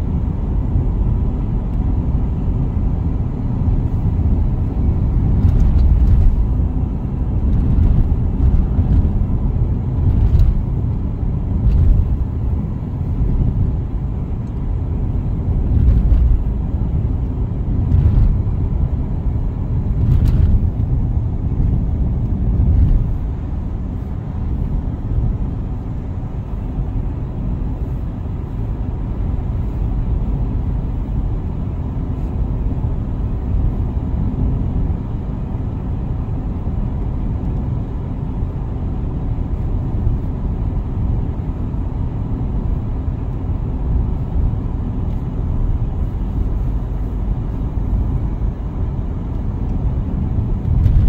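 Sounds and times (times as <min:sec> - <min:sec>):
tyre and engine rumble: 0:00.0 - 0:51.0.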